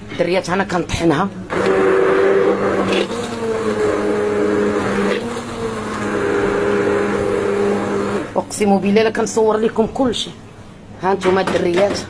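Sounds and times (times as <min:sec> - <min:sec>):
immersion blender whirring: 0:01.5 - 0:08.4.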